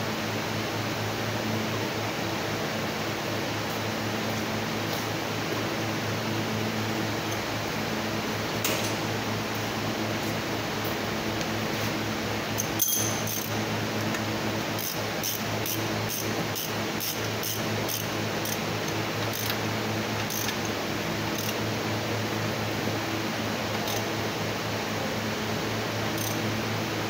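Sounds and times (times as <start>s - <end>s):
fan hum: 0.0s - 27.0s
metallic clack: 12.6s - 13.5s
ratchet clicking: 12.6s - 13.6s, 14.8s - 19.6s, 20.2s - 21.6s.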